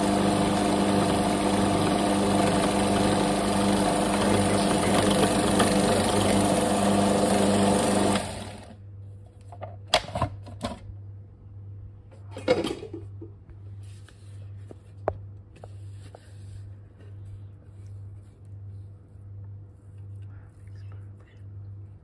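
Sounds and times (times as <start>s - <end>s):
food processor motor running: 0.0s - 8.8s.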